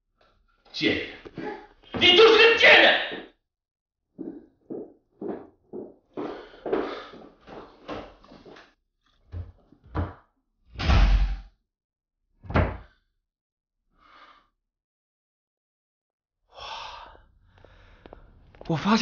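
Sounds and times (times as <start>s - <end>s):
man breathing hard: 6.2s - 8.6s, 16.5s - 18.4s.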